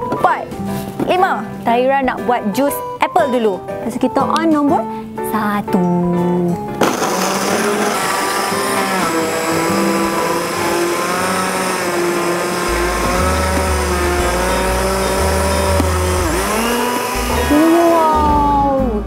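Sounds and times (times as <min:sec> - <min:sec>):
blender motor whining: 0:06.8 - 0:18.5.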